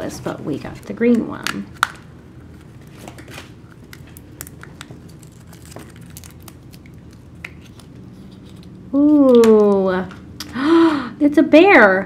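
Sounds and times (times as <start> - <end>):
paper crinkling: 1.8 - 8.8.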